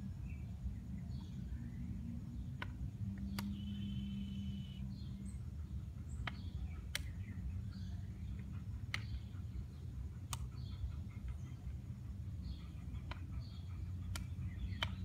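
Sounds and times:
sharp clicks: 2.5 - 4.0, 6.2 - 7.4, 8.4 - 9.3, 10.2 - 10.7, 13.0 - 13.4, 14.1 - 15.0.

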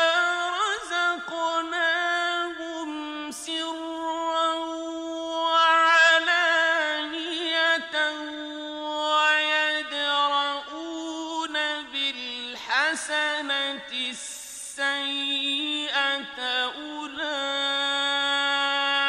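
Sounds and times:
man chanting: 0.0 - 19.0.

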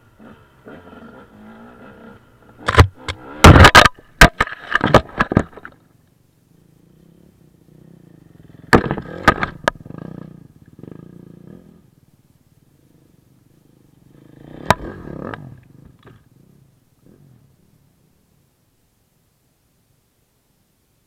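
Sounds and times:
faint low rumble: 0.0 - 21.0
sharp knocks and clatter: 2.6 - 5.7.

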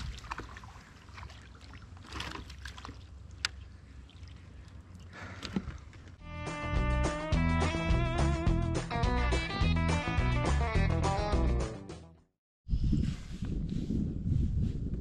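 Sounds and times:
water splashing and dripping: 0.0 - 6.1
guitar music: 6.2 - 12.1.

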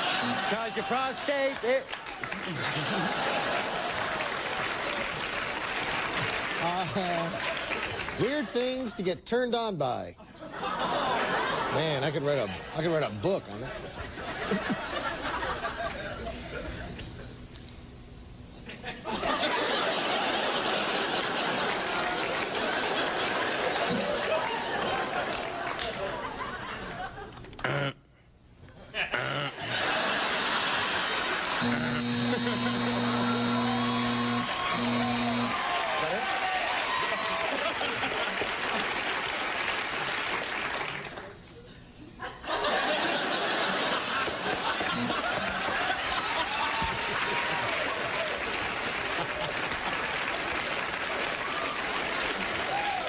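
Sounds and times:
audience chuckling: 0.0 - 1.2, 2.2 - 5.2, 13.5 - 17.3, 18.6 - 28.0, 28.8 - 33.7, 37.3 - 39.1, 42.2 - 47.8, 49.0 - 49.8
audience laughing loudly: 0.0 - 1.6, 2.2 - 5.3, 10.4 - 17.0, 18.7 - 27.4, 28.9 - 33.9, 36.9 - 39.2, 42.2 - 49.8.

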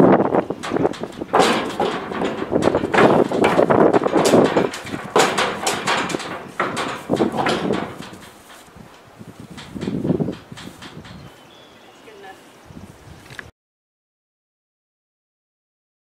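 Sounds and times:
horse hooves knocking on steel floor: 0.0 - 11.4.

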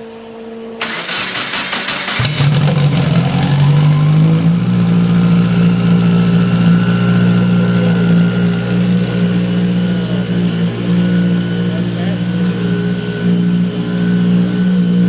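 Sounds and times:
car engine idling: 0.8 - 15.0.

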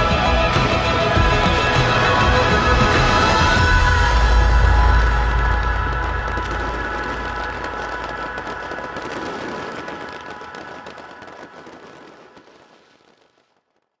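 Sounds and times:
low rumble: 0.0 - 9.7
fireworks crackling: 0.0 - 14.0.

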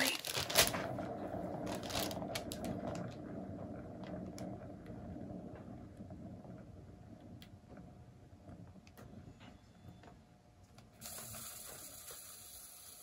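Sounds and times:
turntable bearing rumbling: 0.0 - 10.2.

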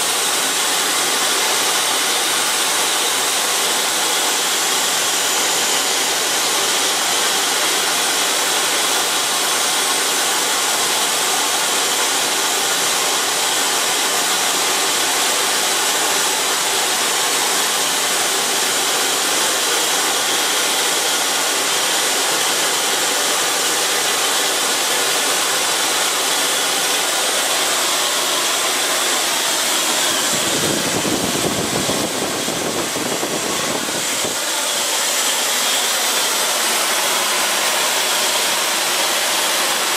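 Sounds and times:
jet engine hiss: 0.0 - 39.9
high whine: 24.7 - 38.9.

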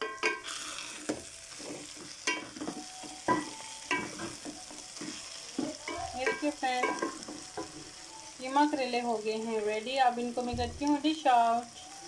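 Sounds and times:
food sizzling in oil: 0.0 - 12.0
spoon knocking against metal pot: 2.3 - 4.6, 5.9 - 7.9.

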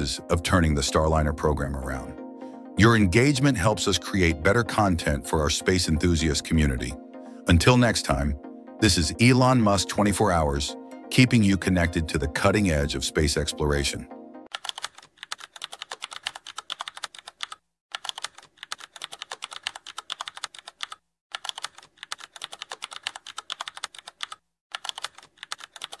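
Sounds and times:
computer keyboard typing: 14.5 - 26.0.

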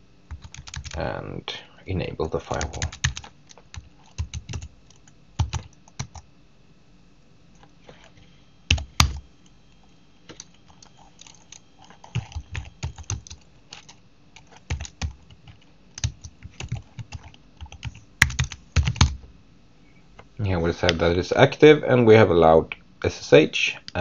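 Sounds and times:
typing on keyboard: 0.3 - 1.0, 2.5 - 6.2, 8.7 - 9.2, 10.3 - 19.2.

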